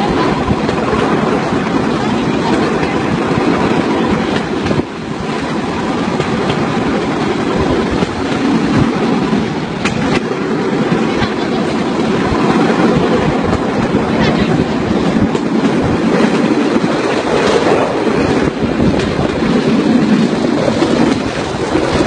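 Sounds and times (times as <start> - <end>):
train wheels rattling on rails: 0.0 - 22.0
sharp clicks on track: 9.8 - 11.4.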